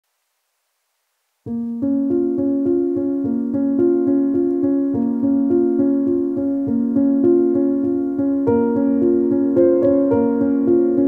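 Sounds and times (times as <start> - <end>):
calm keyboard music: 1.5 - 11.0.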